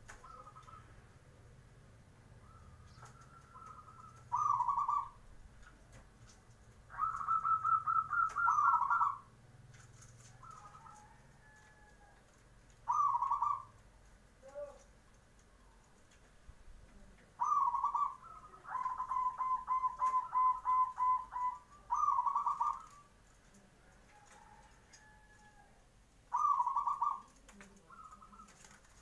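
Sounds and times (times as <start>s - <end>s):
dove cooing: 0.0s - 1.1s, 2.4s - 5.7s, 6.9s - 12.1s, 12.7s - 13.8s, 16.9s - 25.7s, 26.3s - 29.0s.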